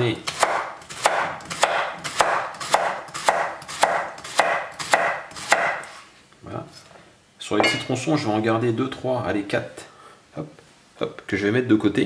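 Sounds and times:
knife slicing leek on board: 0.2 - 6.0.

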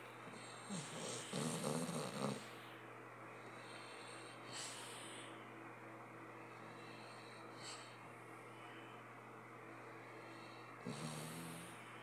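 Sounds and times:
dog breathing: 0.2 - 2.6, 3.3 - 5.4, 6.5 - 8.1
dog snoring: 0.3 - 2.6, 10.2 - 12.0.

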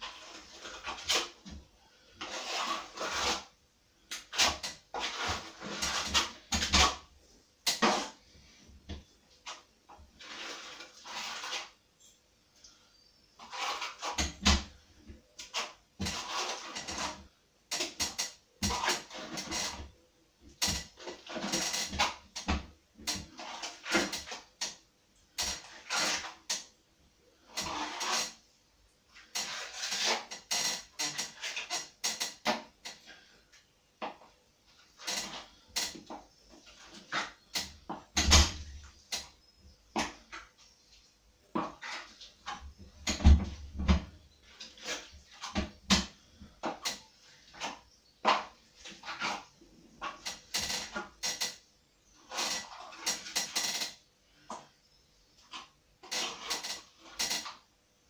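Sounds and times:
trowel scraping wet plaster: 0.0 - 7.1, 7.7 - 8.3, 10.2 - 11.8, 13.4 - 14.7, 15.4 - 17.2, 23.2 - 24.6, 25.6 - 26.5, 27.5 - 28.4, 29.2 - 33.2, 41.6 - 42.6, 44.4 - 45.7, 46.6 - 51.2, 55.5 - 57.6.

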